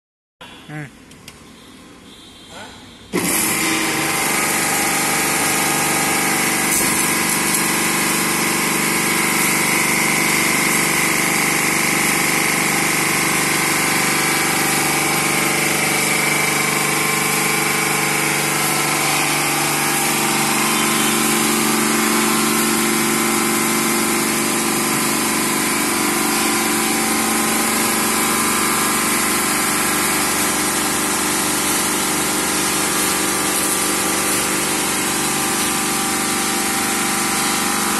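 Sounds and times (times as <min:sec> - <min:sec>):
pressure washer pump hum: 0:01.2 - 0:37.9
water jets spraying with hiss: 0:28.7 - 0:37.9.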